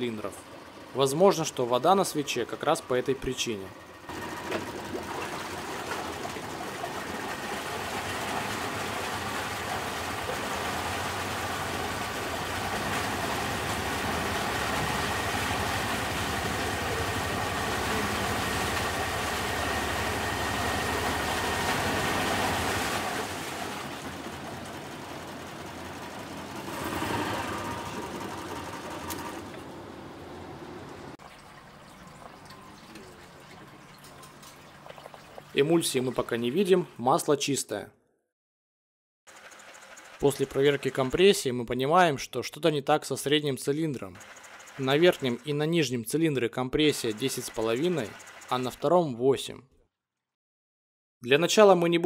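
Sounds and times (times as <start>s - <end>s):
propeller churning water: 0.0s - 36.8s, 39.3s - 41.5s, 44.1s - 45.8s, 46.8s - 49.0s
outboard engine running unevenly: 3.8s - 31.2s, 39.3s - 41.1s, 44.2s - 45.4s, 47.0s - 48.8s.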